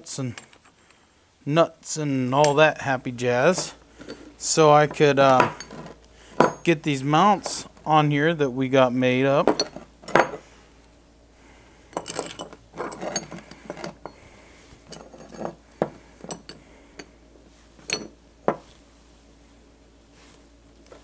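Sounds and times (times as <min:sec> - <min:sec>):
metal bolts clinking: 0:03.5 - 0:07.8, 0:09.4 - 0:10.5, 0:11.9 - 0:14.2, 0:14.8 - 0:15.6, 0:16.2 - 0:17.1, 0:17.8 - 0:18.2.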